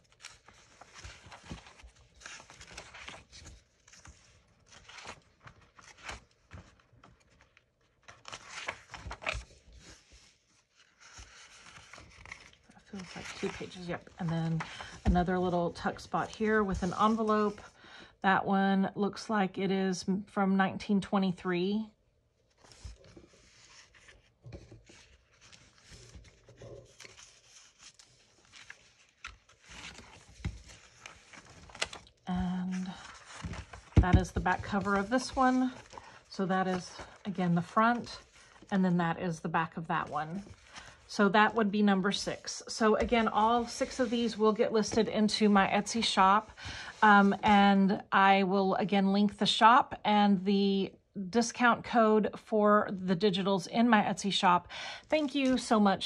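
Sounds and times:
paper pages rustling: 0:00.0 - 0:17.7, 0:22.5 - 0:38.7, 0:40.0 - 0:47.7.

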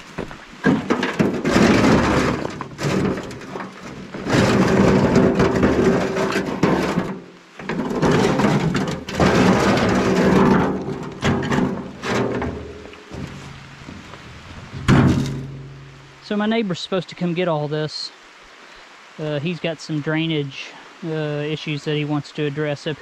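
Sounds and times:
rocks sliding and clattering: 0:00.0 - 0:16.6.

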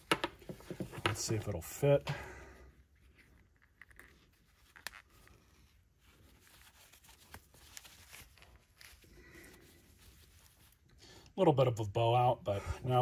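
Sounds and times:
faint handling noise: 0:00.0 - 0:01.9, 0:02.9 - 0:10.9.

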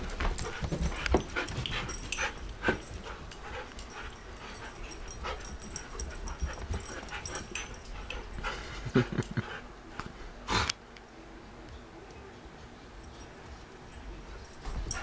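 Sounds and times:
dog paws thumping and scrabbling: 0:00.0 - 0:09.2, 0:14.4 - 0:15.0.

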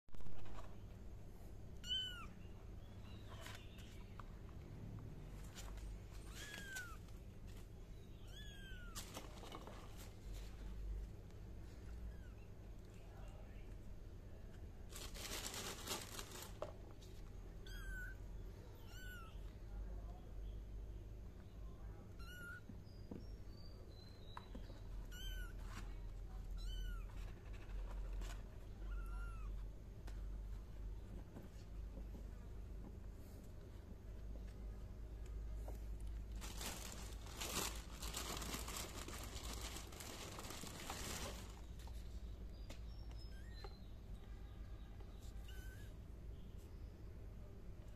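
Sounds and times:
rustling scraping noise: 0:00.1 - 0:01.0, 0:08.8 - 0:10.9, 0:26.8 - 0:29.0, 0:36.2 - 0:42.2.

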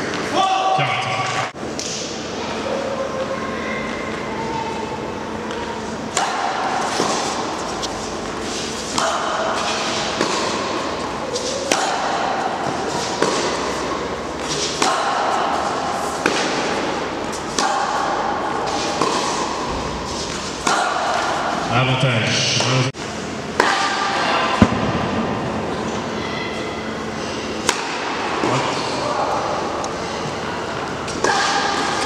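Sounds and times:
racket striking tennis ball: 0:05.5 - 0:21.7, 0:23.5 - 0:25.4, 0:27.6 - 0:28.9, 0:31.0 - 0:32.0.

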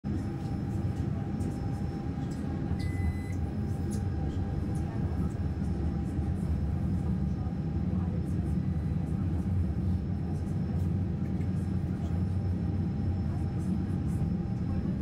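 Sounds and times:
subway train wheels rumbling: 0:10.8 - 0:15.0.

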